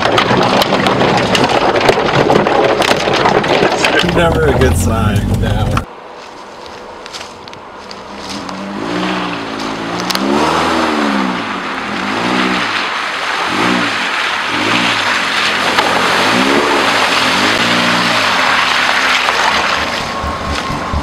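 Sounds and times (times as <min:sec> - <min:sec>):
tyres splashing through puddles: 0:00.0 - 0:05.9, 0:08.8 - 0:21.0
tyres churning over gravel: 0:00.0 - 0:21.0
car engine revving: 0:03.9 - 0:05.9, 0:08.0 - 0:21.0.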